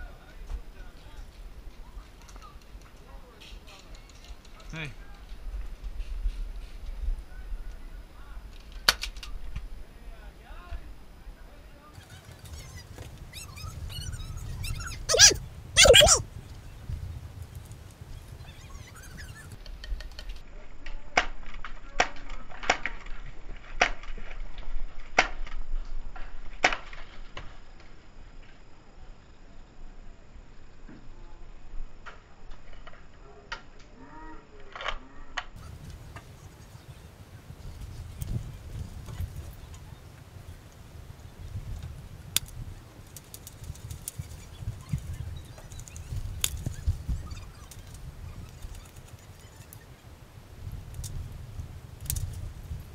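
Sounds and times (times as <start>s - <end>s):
wind rumble: 11.9s - 19.8s, 35.6s - 52.9s.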